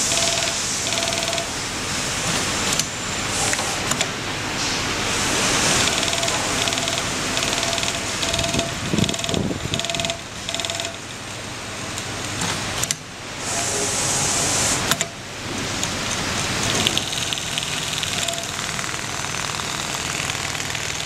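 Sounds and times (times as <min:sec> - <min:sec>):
sewing machine hum: 0:00.0 - 0:02.8, 0:05.3 - 0:11.0, 0:16.3 - 0:21.0
sewing machine stitching: 0:05.7 - 0:11.0, 0:16.6 - 0:21.0.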